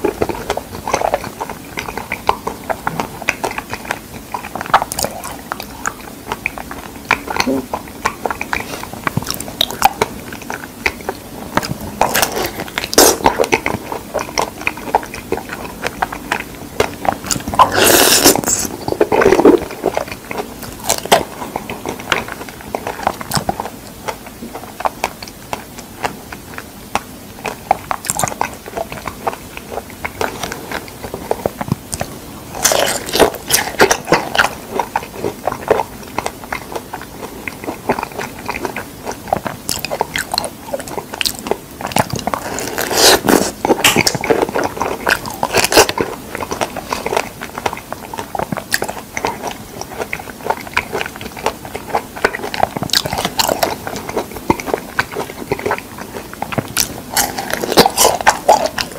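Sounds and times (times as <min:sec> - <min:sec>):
chewing and biting figs: 0:00.0 - 0:58.9.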